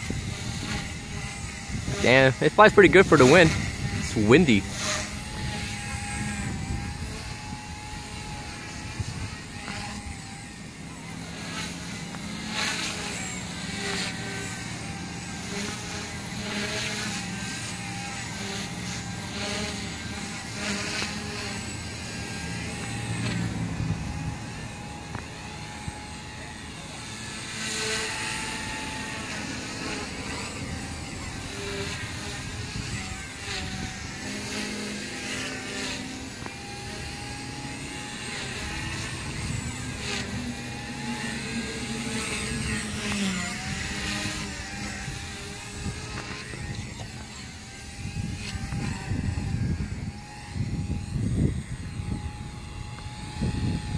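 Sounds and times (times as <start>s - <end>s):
wind on microphone: 0.0s - 2.5s, 3.4s - 10.3s, 29.0s - 35.3s, 36.4s - 53.9s
rc helicopter motor whine: 0.0s - 53.9s.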